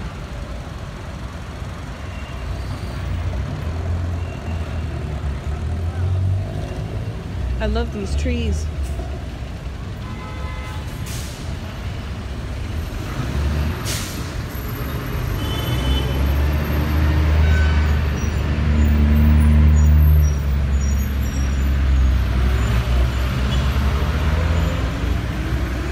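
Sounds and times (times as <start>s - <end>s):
car and bus engines rumbling: 0.0s - 25.9s.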